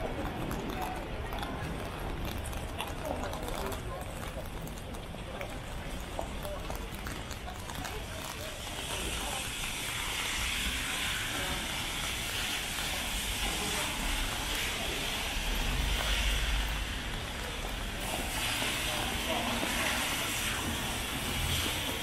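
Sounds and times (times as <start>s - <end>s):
wet traffic: 0.0s - 22.0s
rain hissing: 7.8s - 22.0s.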